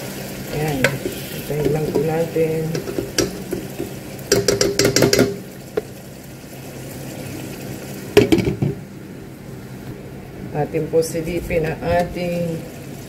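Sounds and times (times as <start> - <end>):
sauce bubbling: 0.0 - 10.4.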